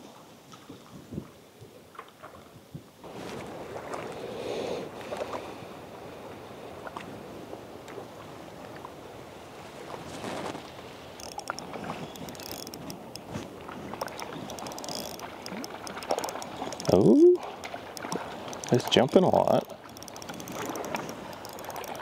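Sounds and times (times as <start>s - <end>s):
light wind: 0.0s - 22.0s
small waves lapping: 0.0s - 22.0s
sharp light clicks: 11.2s - 13.3s, 13.9s - 17.0s, 17.9s - 22.0s.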